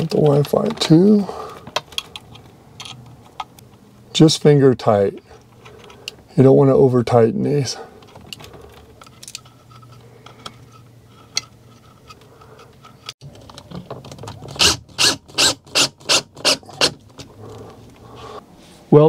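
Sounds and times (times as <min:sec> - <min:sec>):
drill driving screw: 0:14.5 - 0:17.0.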